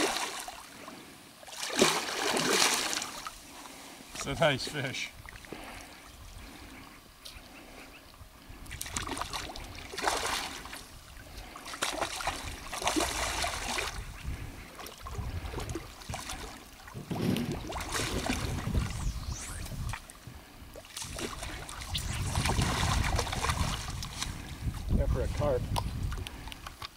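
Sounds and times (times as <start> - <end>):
fish splashing in water: 1.4 - 3.3, 8.8 - 14.1.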